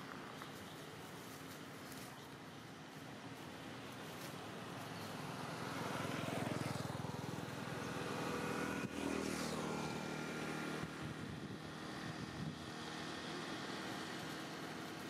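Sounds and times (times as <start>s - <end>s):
vehicle engine running: 3.4s - 15.0s.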